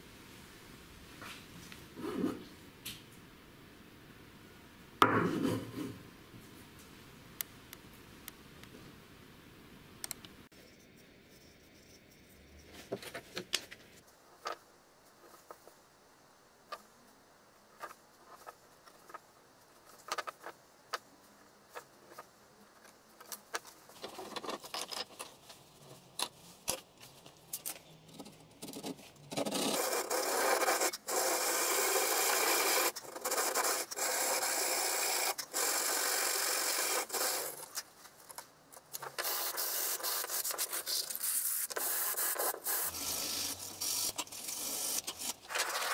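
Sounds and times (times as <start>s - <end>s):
wooden block scratching on sandpaper: 29.4s - 34.5s, 39.2s - 45.9s.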